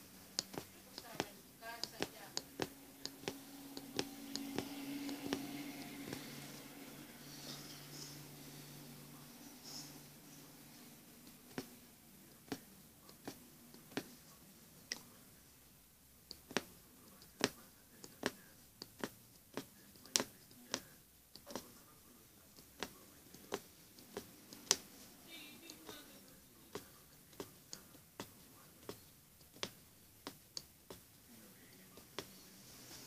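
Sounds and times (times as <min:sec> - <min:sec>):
punch needle clicking through fabric: 0:00.0 - 0:06.6, 0:16.3 - 0:21.7, 0:22.6 - 0:24.9, 0:26.7 - 0:31.2.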